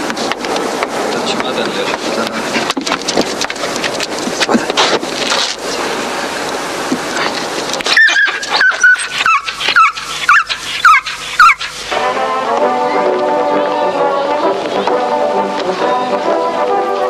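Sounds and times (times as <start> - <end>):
dog scrabbling inside a car: 2.5 - 5.6
dog yelping whines: 7.9 - 11.8.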